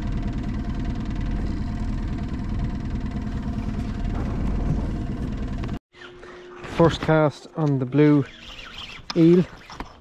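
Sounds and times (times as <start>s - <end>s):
outboard motor running: 0.0s - 7.0s.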